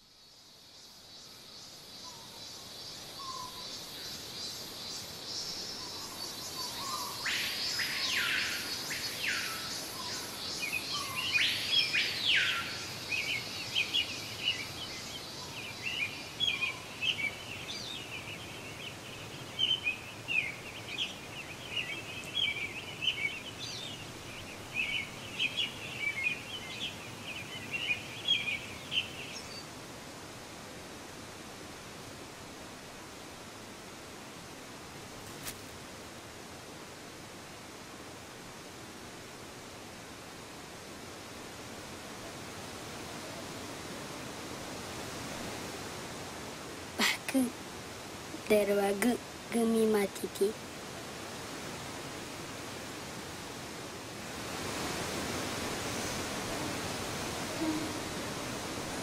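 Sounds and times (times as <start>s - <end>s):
high insect buzz: 55.4s - 59.0s.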